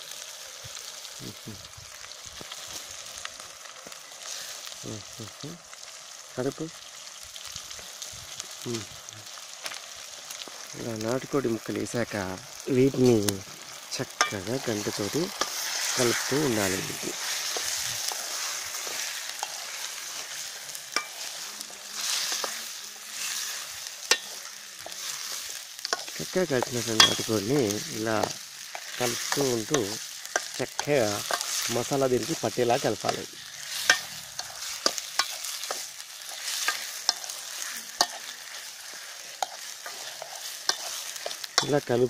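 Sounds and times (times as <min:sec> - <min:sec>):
chicken sizzling in pot: 0:00.0 - 0:42.0.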